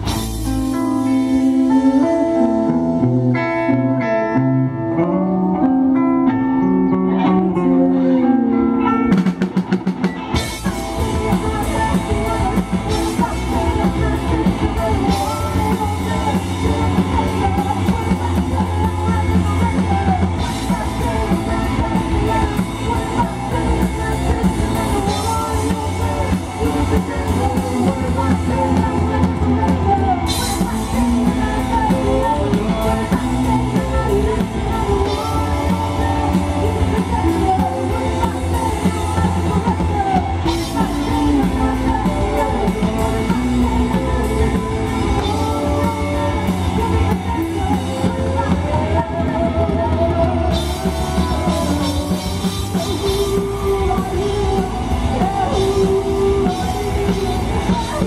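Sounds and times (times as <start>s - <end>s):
lead vocal singing: 0.0s - 58.0s
live rock band playing: 0.0s - 58.0s
guitar strums: 0.3s - 10.6s.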